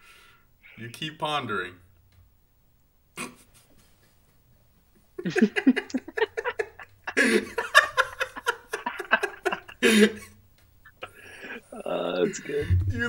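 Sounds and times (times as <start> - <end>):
men laughing hard: 5.2 - 11.6.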